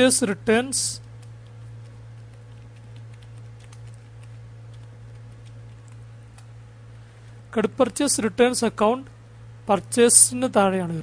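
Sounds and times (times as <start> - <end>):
low electrical hum: 0.0 - 11.0
typing on computer keyboard: 1.2 - 6.5.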